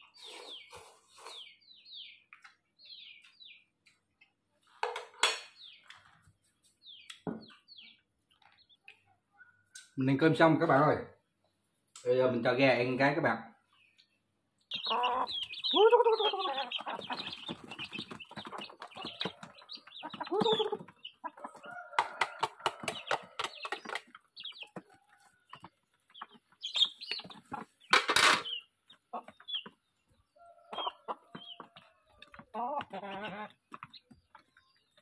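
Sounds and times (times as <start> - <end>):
chickens clucking: 0.0 - 10.0, 13.7 - 35.0
pecking taps on concrete: 21.7 - 27.3.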